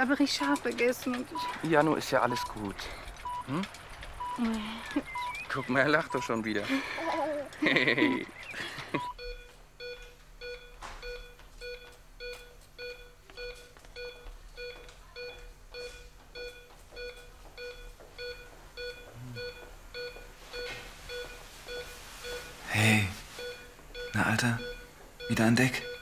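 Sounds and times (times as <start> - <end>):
patient monitor beeping: 0.0 - 26.0
faint steady hum: 1.1 - 26.0.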